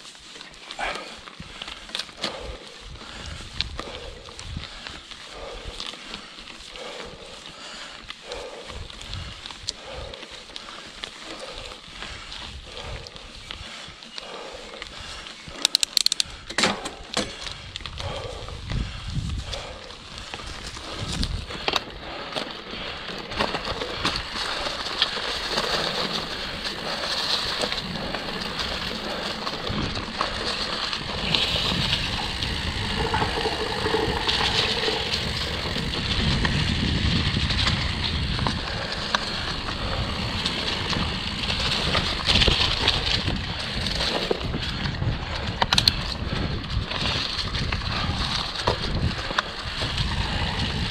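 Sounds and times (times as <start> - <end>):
bike clicks and rattles: 0.0 - 50.9
tyres crunching over dirt: 19.4 - 44.9
low rumble: 25.9 - 43.2.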